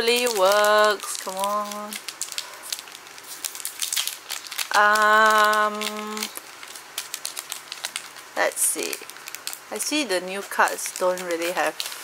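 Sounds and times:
foil wrapper crinkling and tearing: 0.0s - 12.0s.

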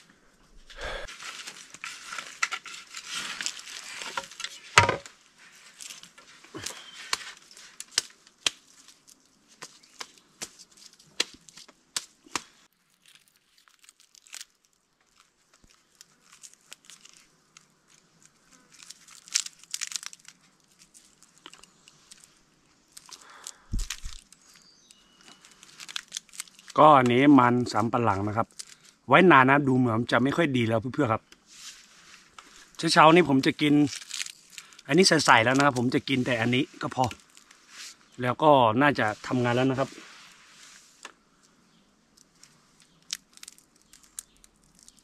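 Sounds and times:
stick raking through ashes: 1.1s - 12.1s
charred root snapping: 5.8s - 27.4s, 28.4s - 28.9s, 33.3s - 36.0s, 36.8s - 37.6s, 42.1s - 45.0s.

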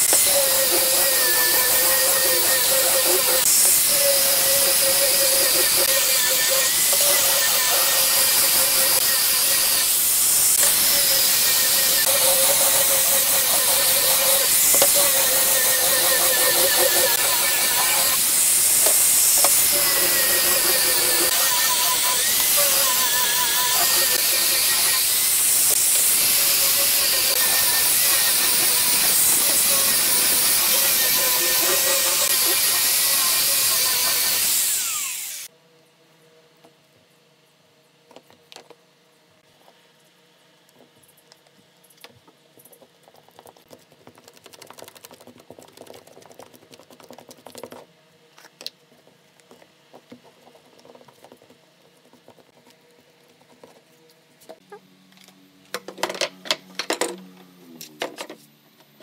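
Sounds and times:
angle grinder sanding wood: 0.0s - 35.5s.

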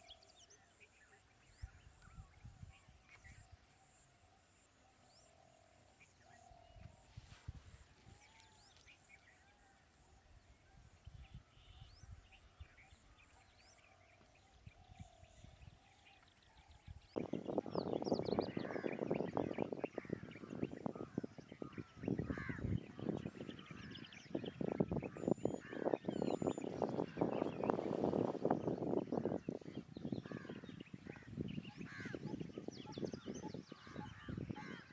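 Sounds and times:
birds chattering: 17.1s - 34.9s.

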